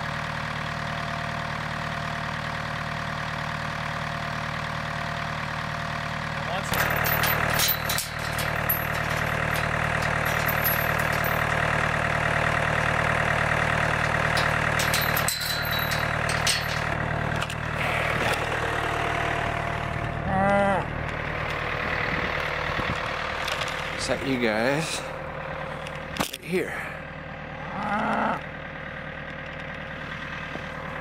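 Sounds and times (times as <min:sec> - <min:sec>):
tractor diesel engine idling: 0:00.0 - 0:31.0
chain rattling against metal gate: 0:06.5 - 0:12.0, 0:13.5 - 0:17.0
cow mooing: 0:20.2 - 0:20.9, 0:27.6 - 0:28.4.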